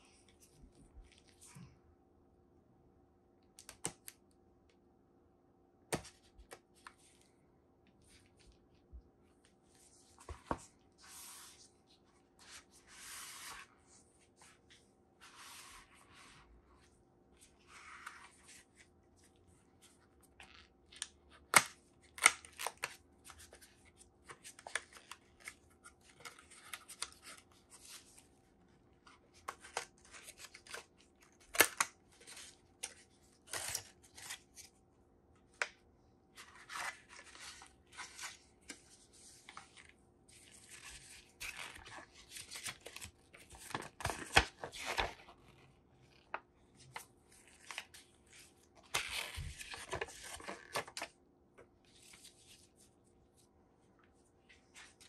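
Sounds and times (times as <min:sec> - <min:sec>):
cardboard and paper rustling: 0:36.4 - 0:51.1.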